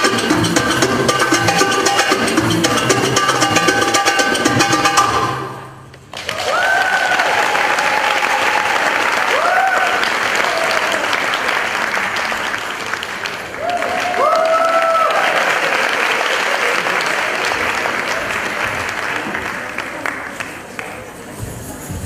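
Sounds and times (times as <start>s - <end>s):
drum solo: 0.0s - 5.6s
audience applauding and cheering: 6.1s - 21.1s
high whoops: 6.2s - 11.2s, 13.6s - 15.5s.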